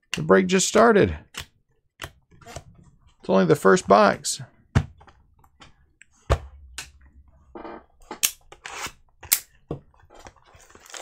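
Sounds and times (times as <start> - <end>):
packs rustling: 10.0 - 11.0.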